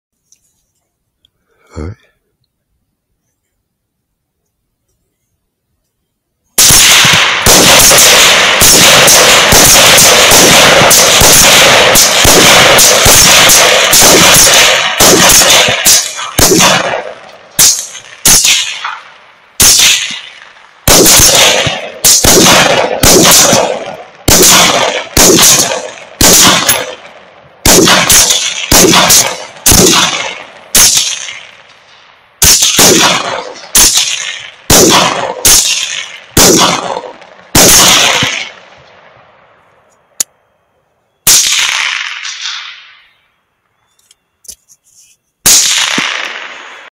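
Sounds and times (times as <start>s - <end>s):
rifle shots with echo: 6.6s - 39.8s, 41.2s - 43.3s, 45.4s - 46.9s.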